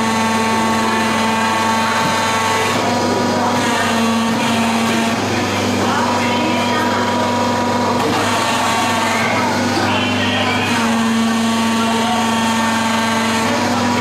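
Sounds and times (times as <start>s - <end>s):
electric motors whirring: 0.0s - 14.0s
people's voices: 0.6s - 14.0s.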